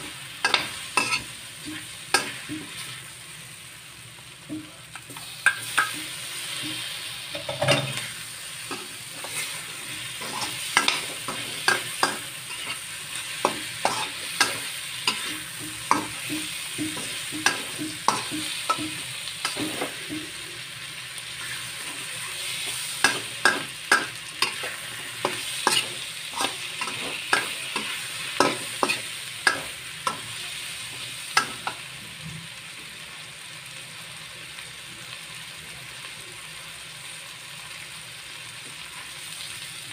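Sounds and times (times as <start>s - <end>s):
metal spatula scraping wok: 0.0s - 3.0s, 5.1s - 20.4s, 21.3s - 30.3s
vegetables sizzling in a wok: 0.0s - 39.9s.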